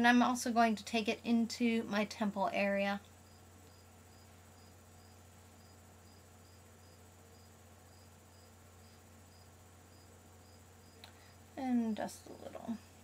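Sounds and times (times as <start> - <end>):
steady low hum: 0.0 - 13.0
insect chirping: 2.4 - 13.0.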